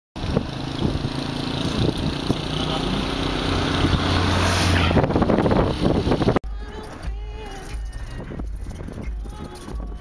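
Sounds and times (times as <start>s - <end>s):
road and wind rush: 0.2s - 10.0s
vehicle engine running: 0.2s - 10.0s.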